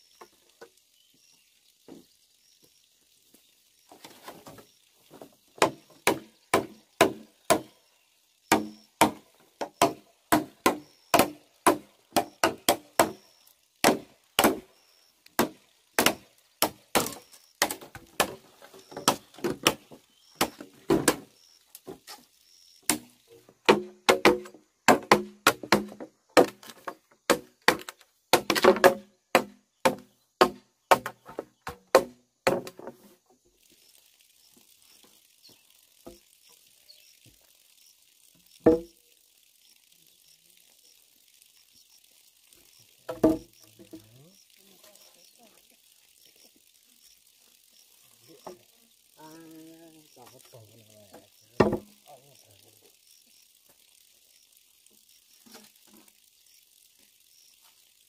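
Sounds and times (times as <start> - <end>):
knife chopping bamboo: 5.6 - 7.8, 8.5 - 13.2, 13.8 - 14.7, 15.4 - 21.2, 22.9 - 32.9, 51.6 - 52.0.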